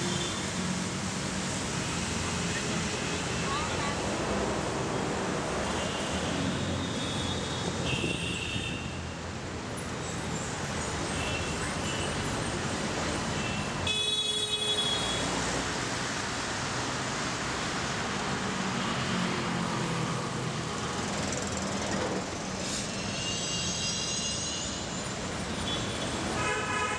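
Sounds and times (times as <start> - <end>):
city road traffic: 0.0 - 26.9
vehicle horns honking: 5.7 - 9.0, 13.4 - 15.3, 25.5 - 26.9.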